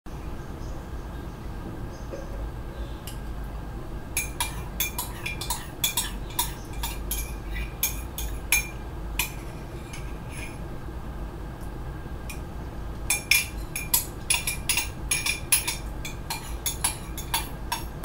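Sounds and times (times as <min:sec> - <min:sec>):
metal spoon clinking in a mug: 0:04.2 - 0:10.6, 0:13.1 - 0:18.0.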